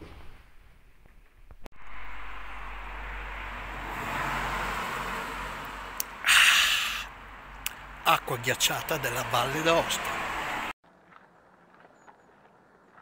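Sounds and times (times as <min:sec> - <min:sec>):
man exhaling breathily: 0:06.2 - 0:07.1.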